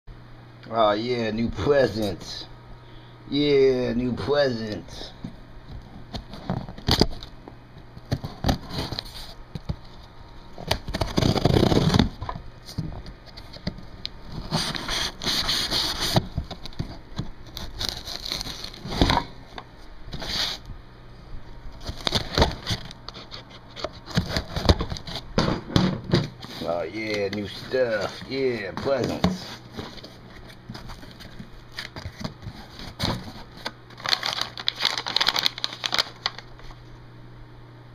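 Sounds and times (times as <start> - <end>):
cardboard scraping and tearing: 10.8 - 12.2, 14.3 - 19.3, 20.2 - 20.6, 21.8 - 25.3, 26.4 - 36.4.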